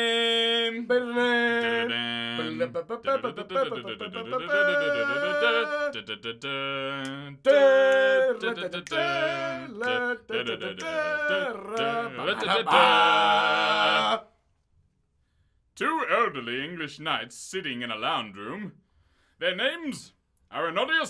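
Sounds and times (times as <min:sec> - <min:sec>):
man singing a cappella chant: 0:00.0 - 0:12.8.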